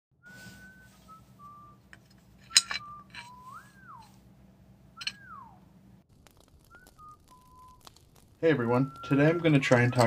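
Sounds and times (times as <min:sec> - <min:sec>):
person whistling a tune: 0:00.2 - 0:01.9, 0:02.5 - 0:04.1, 0:05.0 - 0:05.6, 0:08.8 - 0:10.0.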